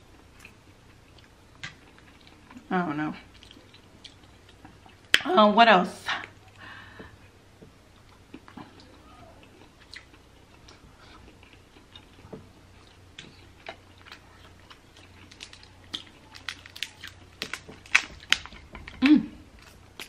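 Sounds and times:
person chewing crab meat: 3.3s - 5.2s, 7.9s - 19.0s
crab shell cracking: 14.6s - 19.0s.

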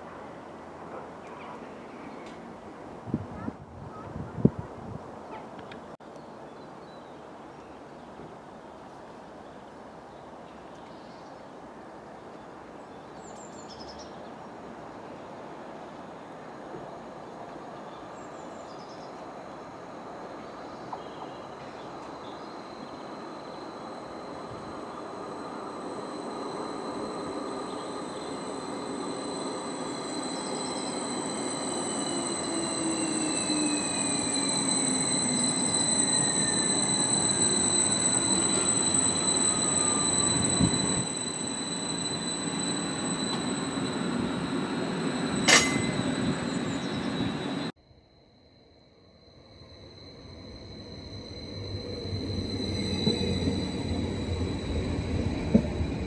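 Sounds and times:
train passing through station: 0.0s - 47.8s, 49.0s - 56.0s
wheel squeal: 21.0s - 47.7s, 49.6s - 56.0s
falling whine: 22.0s - 47.7s, 49.1s - 56.0s.

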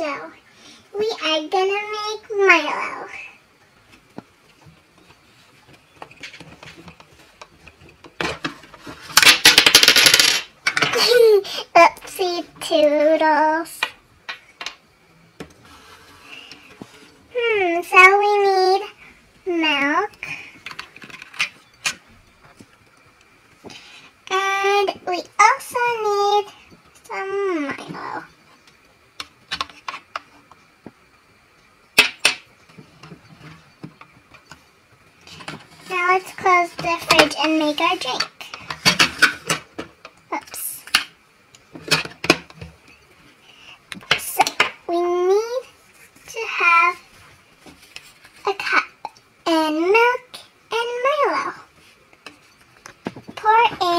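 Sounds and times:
toy items clicking and knocking: 9.1s - 11.1s.

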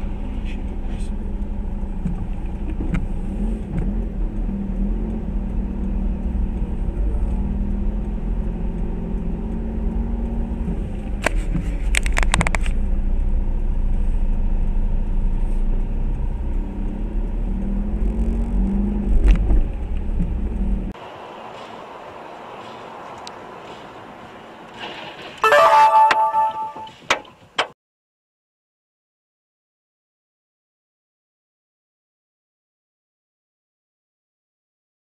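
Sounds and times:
car engine and road noise: 0.0s - 27.8s.

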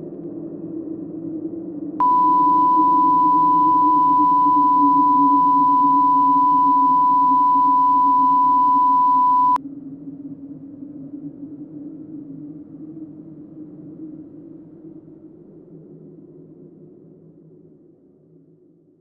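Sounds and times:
low steady drone: 0.0s - 17.7s
high electronic tone: 2.0s - 9.6s.

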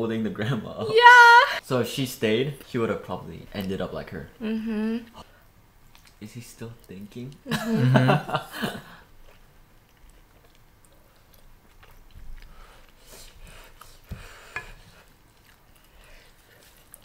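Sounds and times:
people chewing: 5.0s - 17.0s.

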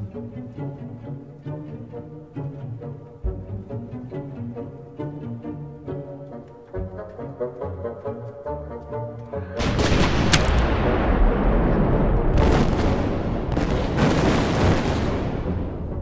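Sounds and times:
music: 0.0s - 16.0s
cartoon cannon explosions: 9.6s - 16.0s.

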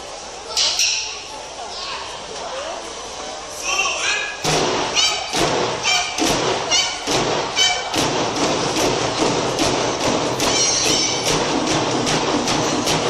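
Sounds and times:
taiko drums beating: 4.4s - 13.0s
short high-pitched calls: 4.9s - 8.0s.

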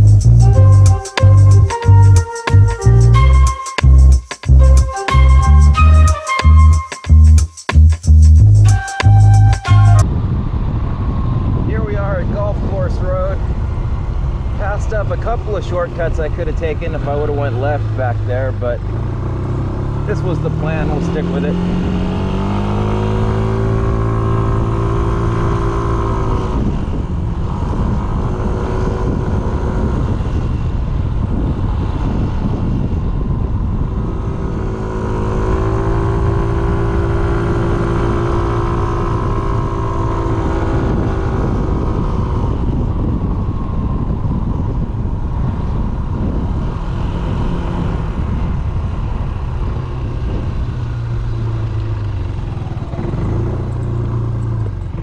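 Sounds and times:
road noise: 0.0s - 55.0s
wind noise: 8.5s - 55.0s
scooter engine running: 48.6s - 55.0s.

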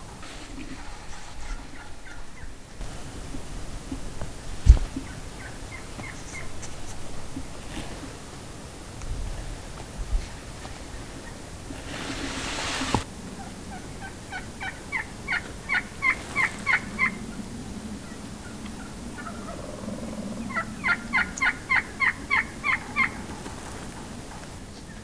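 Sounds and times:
wild turkey yelping: 1.4s - 8.2s, 10.4s - 23.5s
rushing hiss: 2.7s - 13.1s.

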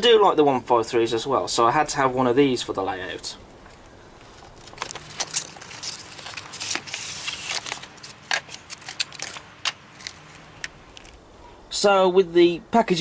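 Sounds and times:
cardboard and polystyrene rustling: 4.4s - 11.2s.

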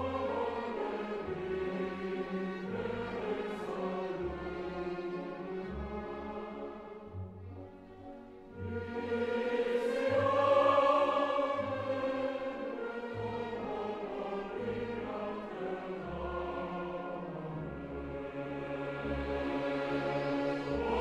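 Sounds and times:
choir singing long held notes: 0.0s - 7.1s, 8.5s - 21.0s.

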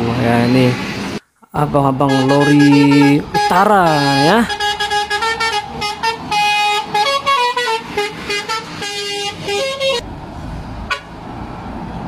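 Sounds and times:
rumble of passing lorries: 0.0s - 12.0s
multi-tone air horn tune: 2.0s - 10.0s.

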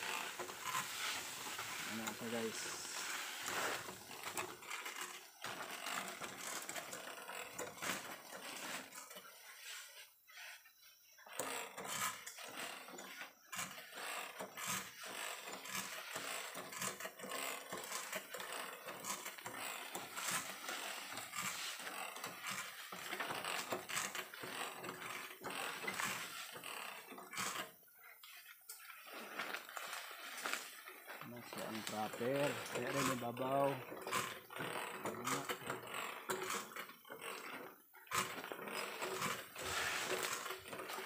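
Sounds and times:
pump lever clanking and creaking: 31.3s - 41.0s.

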